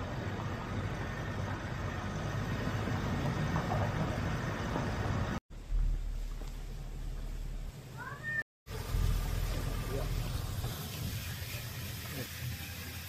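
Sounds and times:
low hum: 0:00.0 - 0:08.0, 0:08.7 - 0:11.1.

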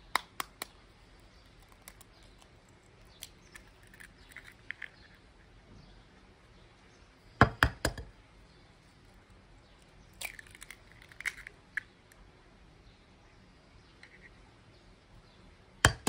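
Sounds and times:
egg cracking taps: 0:00.0 - 0:05.0, 0:07.4 - 0:08.1
eggshell crackling: 0:00.0 - 0:05.3, 0:08.9 - 0:12.2.

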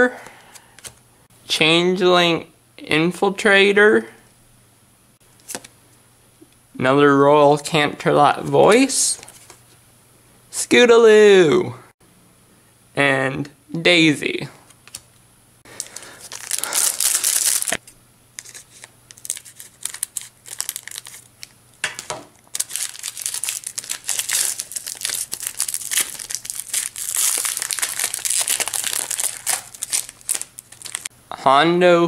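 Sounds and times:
foil wrapper crinkling and tearing: 0:15.7 - 0:21.6, 0:22.4 - 0:31.1.

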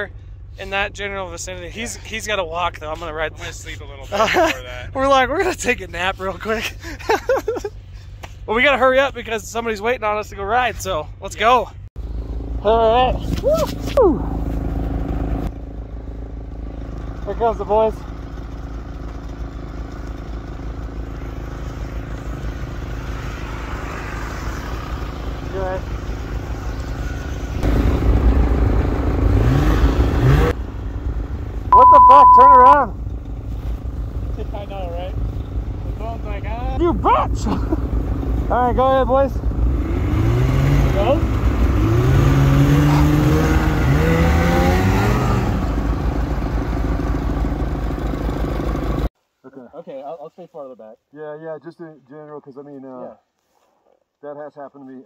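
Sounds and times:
snowmobile engines revving: 0:00.0 - 0:11.6, 0:35.9 - 0:46.2
snowmobile approaching: 0:34.2 - 0:49.0.

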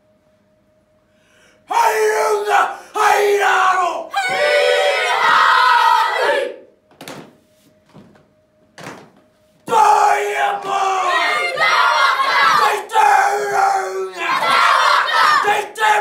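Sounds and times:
group chanting in unison: 0:01.7 - 0:06.7, 0:09.7 - 0:16.0.

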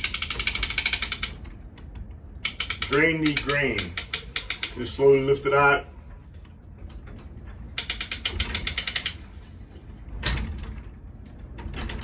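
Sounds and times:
pulley hoist clicking: 0:00.0 - 0:01.6, 0:02.4 - 0:05.4, 0:07.5 - 0:09.3.

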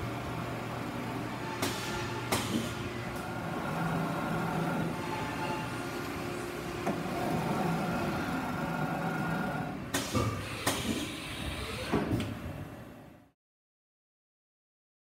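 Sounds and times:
machine hum with faint whine: 0:00.0 - 0:10.0.

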